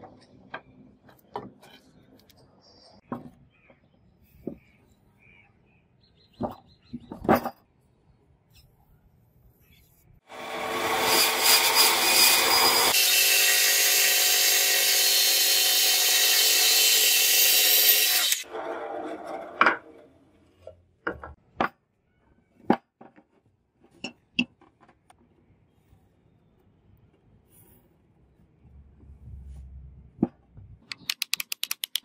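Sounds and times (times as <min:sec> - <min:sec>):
band saw cutting wood: 0:10.3 - 0:20.0.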